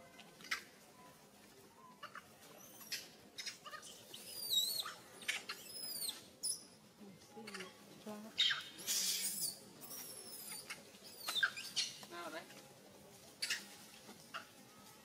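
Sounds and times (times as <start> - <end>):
animal chirps and whistles: 4.1 - 5.0, 5.6 - 6.7, 8.4 - 12.0.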